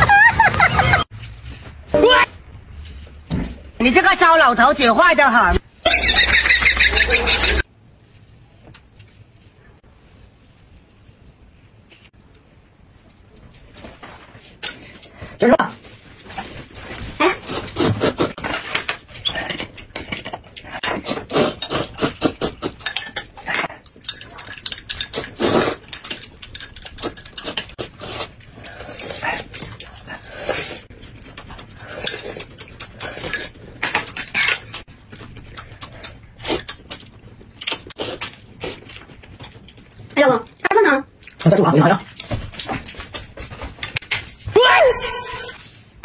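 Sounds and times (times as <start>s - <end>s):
noodles being slurped: 20.9s - 22.9s, 24.1s - 26.1s, 26.8s - 33.6s
chewing: 22.0s - 40.2s.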